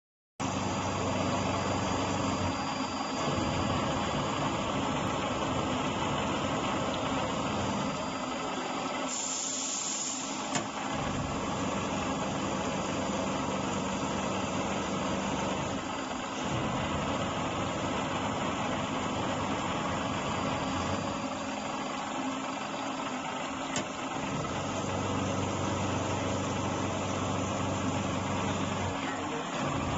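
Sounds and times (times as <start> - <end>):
low hum: 0.4 - 9.0
milling machine running: 0.4 - 29.9.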